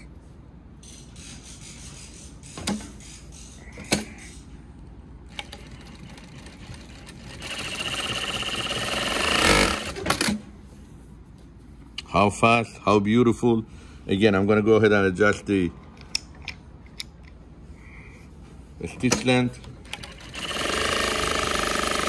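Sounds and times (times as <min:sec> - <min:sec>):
sewing machine clicks: 0:05.3 - 0:10.4, 0:19.1 - 0:22.0
sewing machine stitching: 0:05.3 - 0:10.4, 0:19.8 - 0:22.0.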